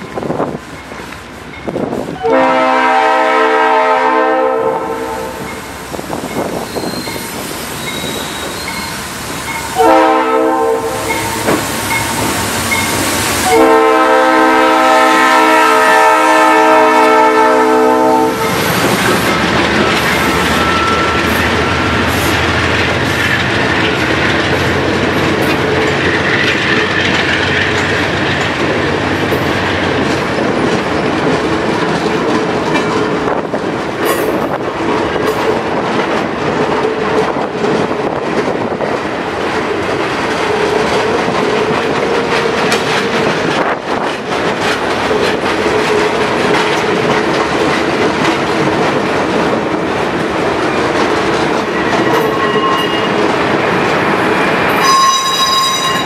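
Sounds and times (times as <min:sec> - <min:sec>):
train coaches rumbling past: 0:00.0 - 0:56.0
locomotive air horn blasts: 0:02.2 - 0:05.6, 0:09.8 - 0:11.5, 0:13.4 - 0:18.7, 0:54.8 - 0:55.3.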